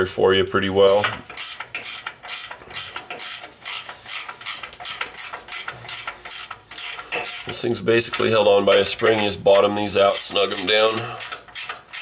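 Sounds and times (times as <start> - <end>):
ratcheting wrench clicking: 0.9 - 12.0.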